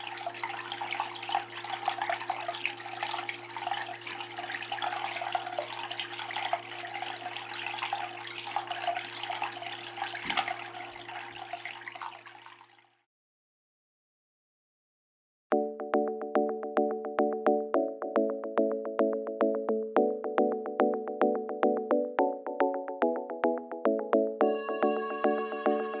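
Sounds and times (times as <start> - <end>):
fountain water trickling and splashing: 0.0 - 13.0.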